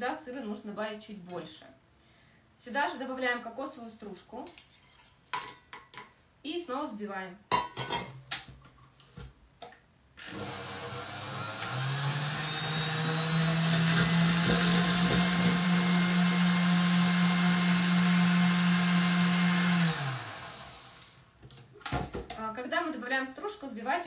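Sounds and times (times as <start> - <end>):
stand mixer whisking in steel bowl: 10.3 - 21.0.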